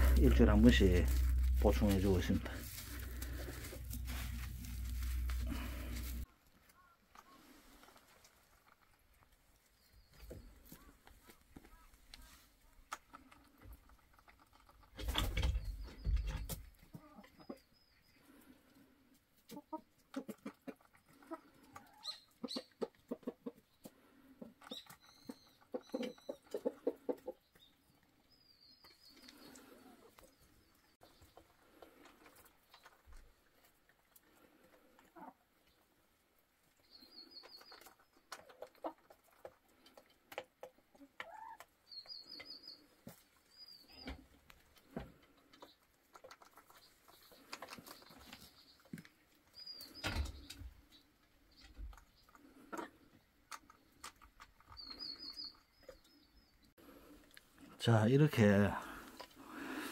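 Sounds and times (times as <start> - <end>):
hens clucking: 0.0 - 6.2, 19.1 - 28.2, 28.9 - 35.9, 36.7 - 49.6
hens trilling calls: 0.0 - 6.2.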